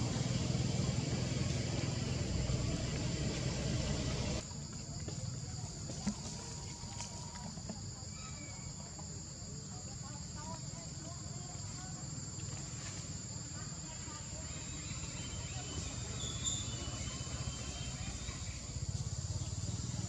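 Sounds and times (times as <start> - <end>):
broad rushing noise: 0.0 - 4.4
insects droning: 0.0 - 20.0.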